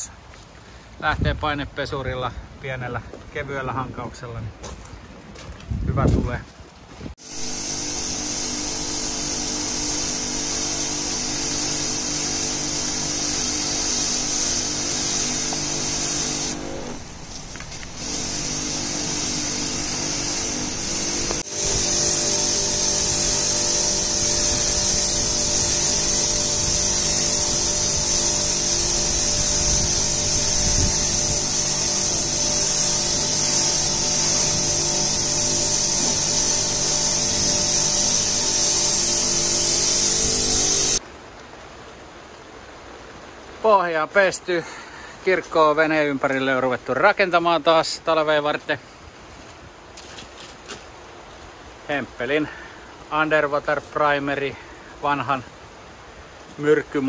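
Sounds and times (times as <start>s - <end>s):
motor hum: 7.2s - 41.0s
pressure washer jet hissing: 7.2s - 41.0s.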